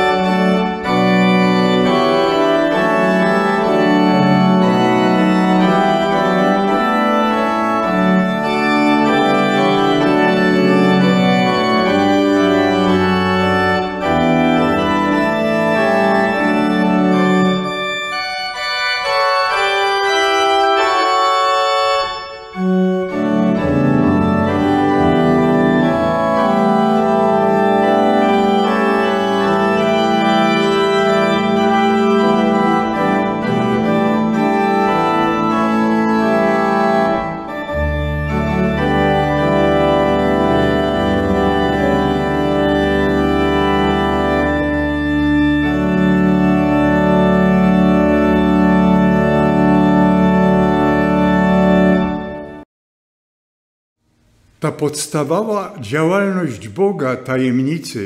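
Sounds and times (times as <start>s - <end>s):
organ sustained chords: 0.0s - 52.6s
low bass line: 38.6s - 44.0s.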